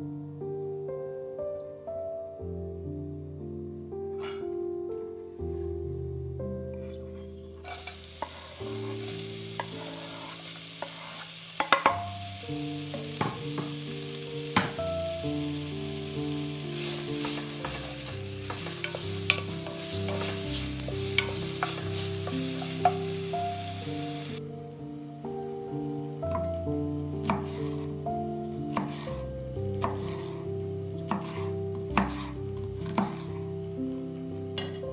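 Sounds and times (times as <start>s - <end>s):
onion sizzling in hot oil: 7.6s - 24.4s, 26.0s - 33.5s.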